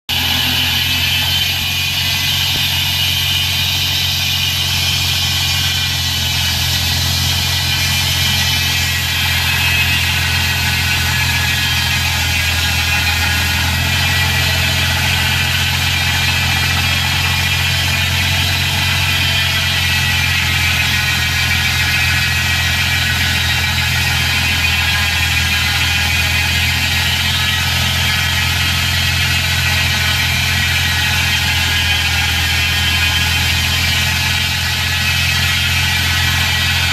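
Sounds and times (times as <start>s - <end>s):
saw blade whirring: 0.1s - 36.9s
sawmill drive humming: 0.1s - 36.9s.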